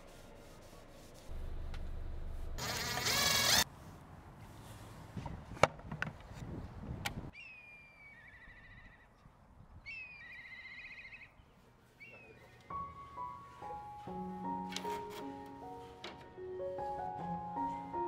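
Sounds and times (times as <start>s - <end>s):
songbird singing: 7.3s - 8.9s, 9.7s - 13.0s.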